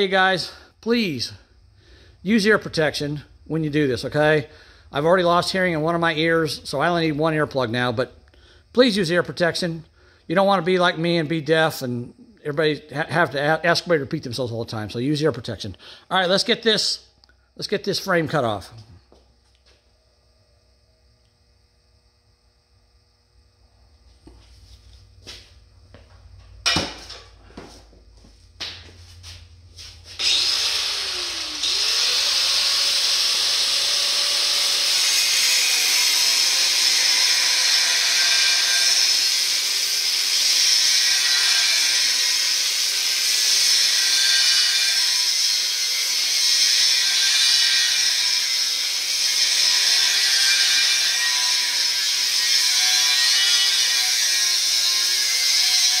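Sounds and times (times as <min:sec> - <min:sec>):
angle grinder cutting steel: 0:29.8 - 0:56.0.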